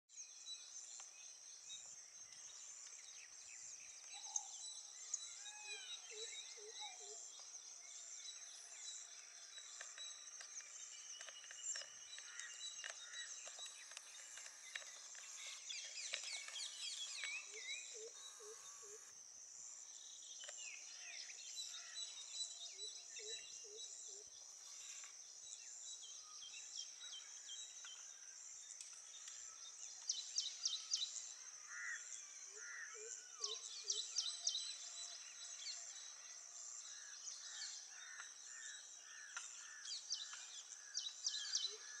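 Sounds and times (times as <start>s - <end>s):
high-pitched insect drone: 14.9s - 19.2s.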